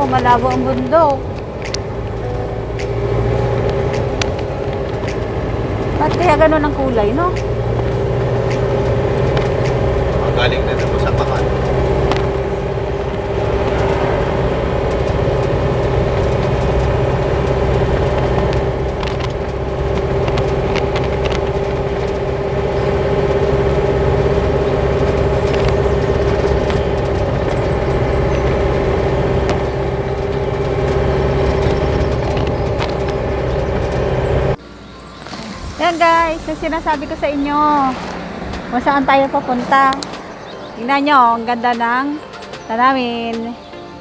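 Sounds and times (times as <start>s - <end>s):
vehicle cabin engine and road noise: 0.0s - 43.8s.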